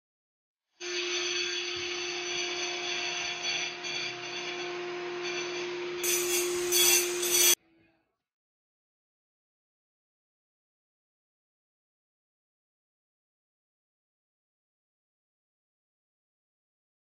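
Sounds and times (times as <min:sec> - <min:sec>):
power tool motor humming: 0:00.8 - 0:07.6
loud harsh noise: 0:02.4 - 0:07.6.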